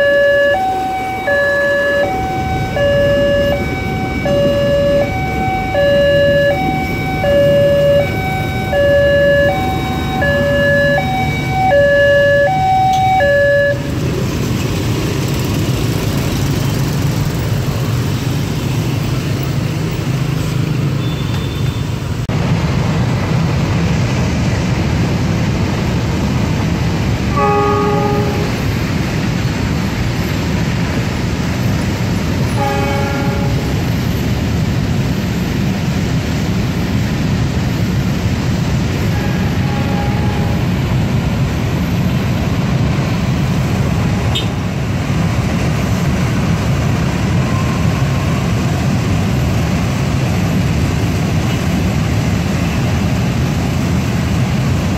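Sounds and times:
level crossing alarm ringing: 0.0s - 13.9s
locomotive horn: 0.0s - 13.9s, 27.2s - 28.7s, 32.5s - 34.0s, 39.0s - 40.8s
road traffic noise: 0.0s - 54.9s
motorcycle engines running: 13.7s - 21.4s.

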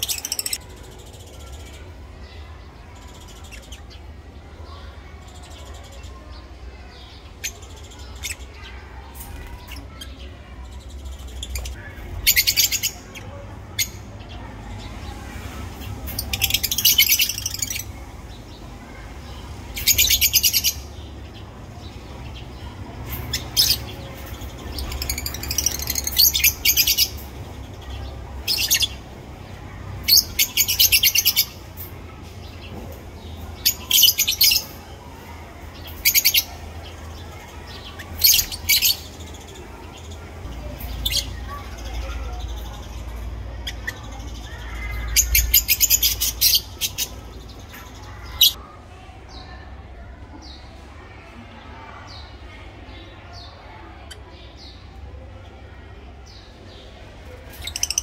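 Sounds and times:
parrots chattering calls: 0.0s - 0.6s, 23.1s - 27.5s, 57.5s - 58.0s.

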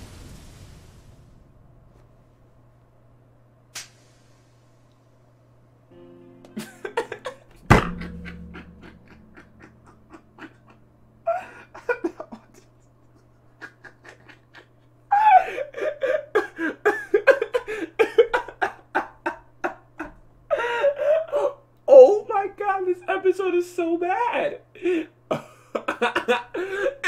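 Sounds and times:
man laughing hard: 6.5s - 21.5s, 24.8s - 27.0s
sharp thump: 7.5s - 10.0s.

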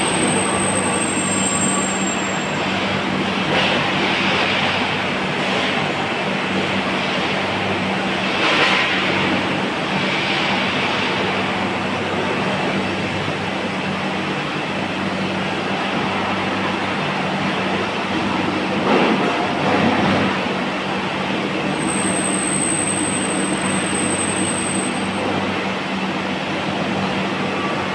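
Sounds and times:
thin high whistle: 0.0s - 2.6s, 21.7s - 25.4s
loud mechanical noise: 0.0s - 27.9s.

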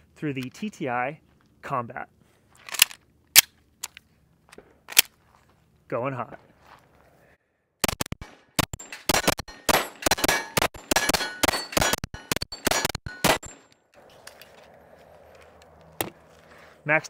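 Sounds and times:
pistol shots: 7.8s - 13.6s
steel plates clanging: 8.8s - 13.7s.

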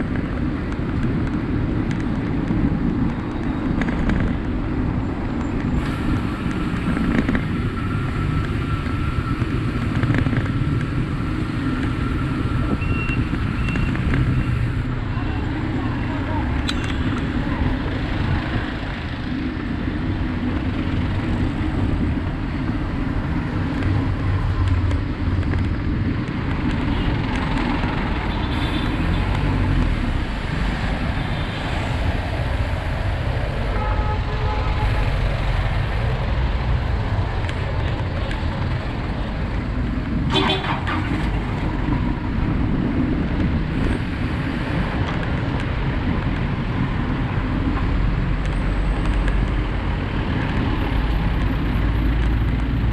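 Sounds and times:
street traffic rumble: 0.0s - 52.9s
vehicle horn toot: 40.3s - 40.9s.

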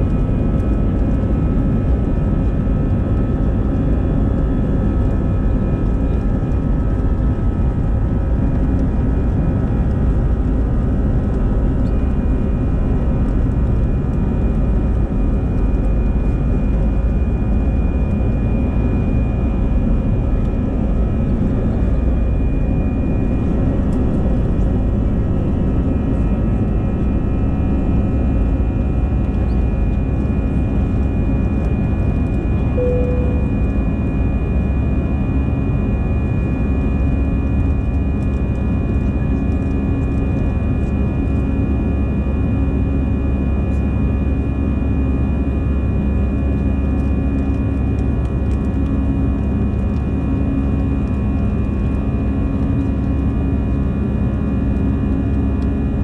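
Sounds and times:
jet engine rumble in cabin: 0.0s - 56.0s
thin engine whine: 15.4s - 39.5s.

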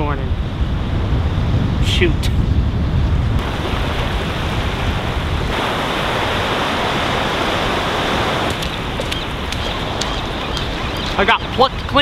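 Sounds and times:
small waves breaking in shallows: 3.4s - 12.0s.

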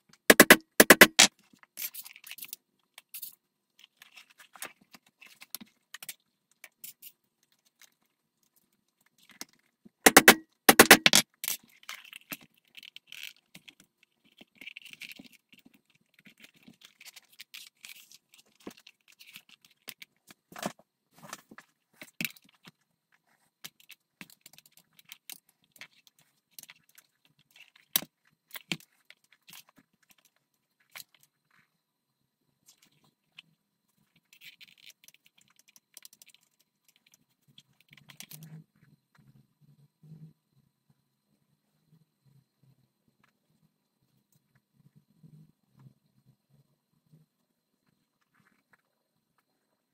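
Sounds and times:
sharp metallic clicks: 0.3s - 1.3s, 10.1s - 11.2s.

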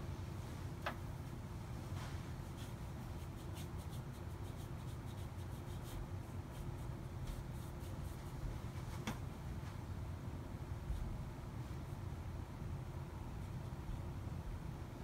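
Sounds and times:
low steady hum: 0.0s - 15.0s
paintbrush scratching on paper: 2.2s - 8.4s.

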